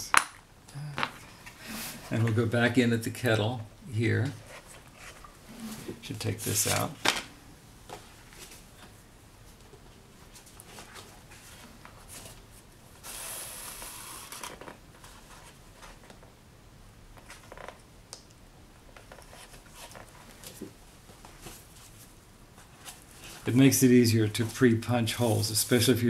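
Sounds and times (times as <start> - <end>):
soft paper rustles: 10.2 - 12.6, 19.0 - 26.0.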